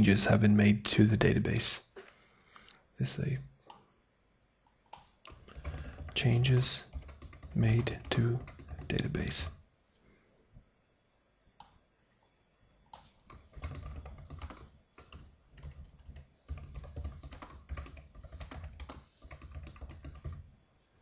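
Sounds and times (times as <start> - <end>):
typing on keyboard: 5.3 - 9.6, 13.0 - 20.5.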